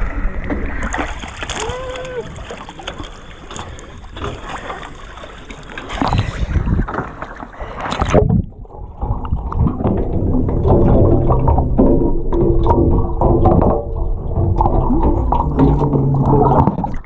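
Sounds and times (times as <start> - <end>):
muffled underwater rumble: 0.0 - 17.0
water sloshing and splashing: 0.0 - 17.0
wind on microphone: 6.0 - 7.2, 7.9 - 16.8.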